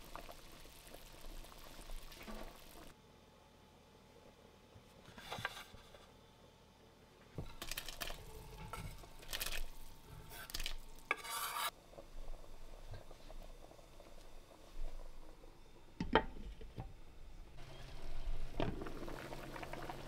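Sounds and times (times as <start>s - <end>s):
utensil scraping cutting board: 10.2s - 11.7s.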